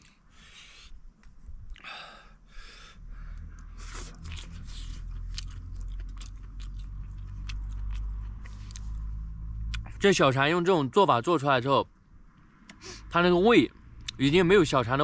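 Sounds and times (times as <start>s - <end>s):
low steady rumble: 0.0s - 15.0s
man chewing with wet smacking: 3.4s - 9.9s.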